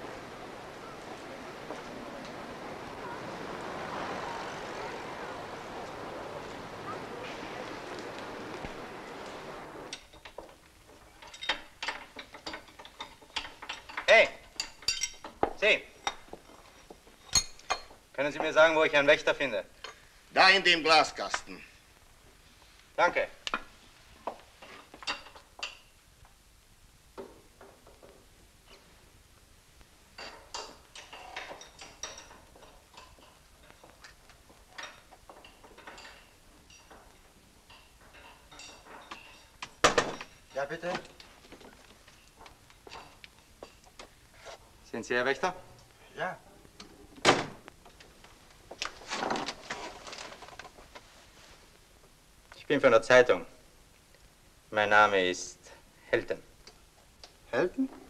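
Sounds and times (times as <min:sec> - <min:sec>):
hand tools clinking against metal: 0:00.1 - 0:18.0, 0:30.2 - 0:41.3.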